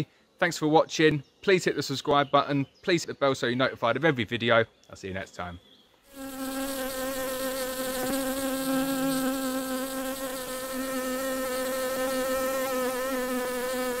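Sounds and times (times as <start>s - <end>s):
bees buzzing: 6.1s - 14.0s.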